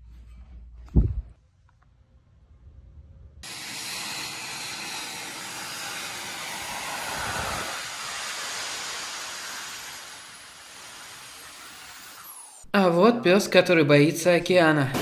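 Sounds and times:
small turbine engines hissing: 3.4s - 12.7s.

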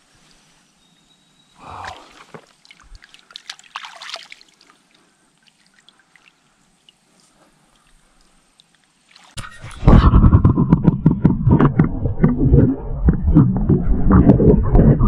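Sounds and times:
water dripping: 1.6s - 9.5s
water splashing: 1.6s - 9.8s.

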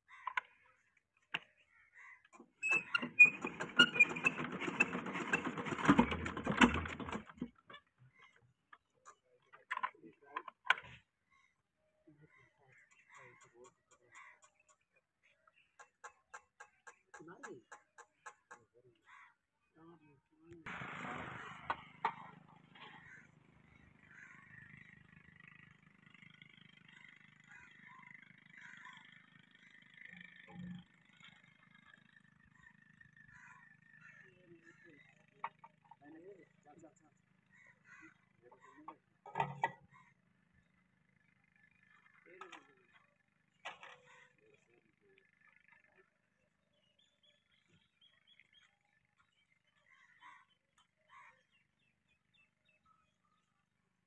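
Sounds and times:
diesel engine clattering rattle: 2.7s - 7.6s.

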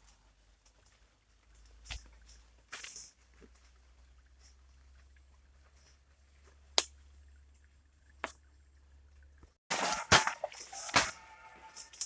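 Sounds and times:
branches cracking: 9.7s - 12.0s.

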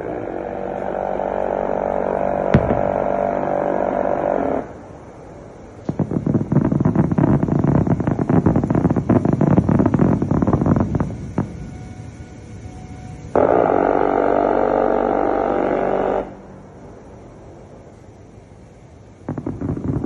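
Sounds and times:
rough crackling rumble: 0.0s - 18.4s, 19.1s - 20.0s
rotary cannon firing burst: 1.4s - 4.7s, 5.9s - 11.6s, 19.3s - 20.0s.

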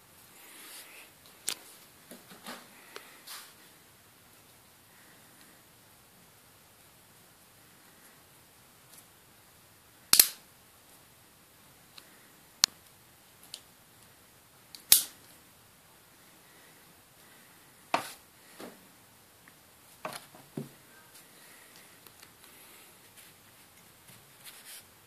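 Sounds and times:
magnets snapping together: 10.1s - 10.4s, 14.8s - 15.2s.

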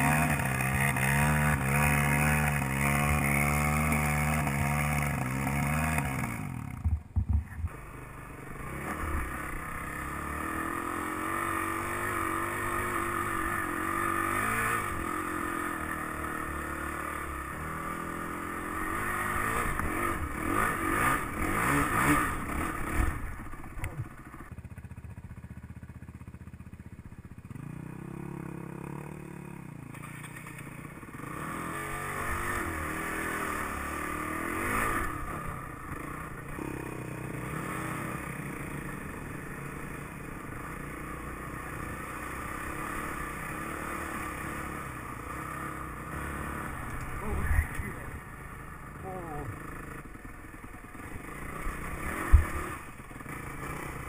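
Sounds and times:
dirt bike engine revving: 0.0s - 24.5s, 27.4s - 54.0s.

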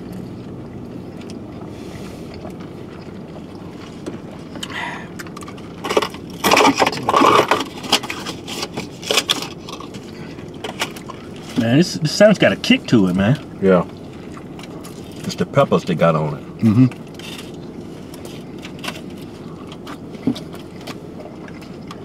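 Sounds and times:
eating noises: 0.0s - 11.7s, 16.4s - 22.0s
low hum in car: 0.0s - 22.0s.

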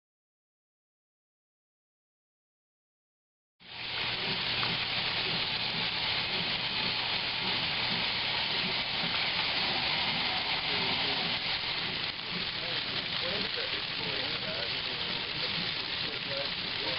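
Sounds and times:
washing machine hum: 3.6s - 16.9s
water rushing in washing machine: 3.6s - 16.9s.

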